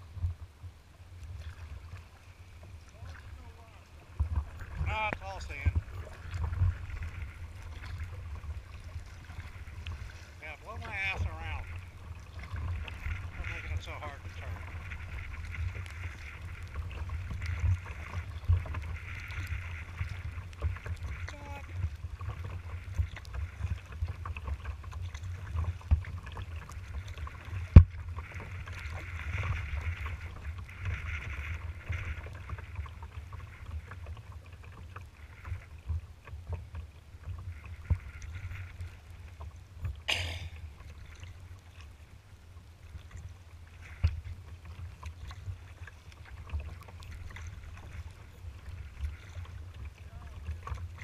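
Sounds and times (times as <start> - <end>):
low wind rumble on microphone: 0.0 - 34.2
paddle splashes: 0.0 - 51.0
water lapping at hull: 0.0 - 51.0.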